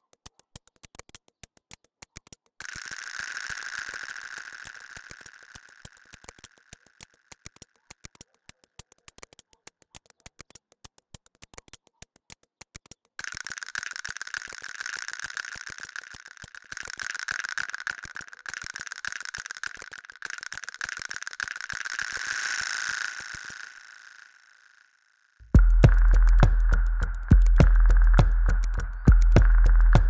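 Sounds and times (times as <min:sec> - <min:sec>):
quick train of clicks: 0:00.2 - 0:24.0
rattling crackly noise: 0:13.2 - 0:24.5, 0:25.5 - 0:30.0.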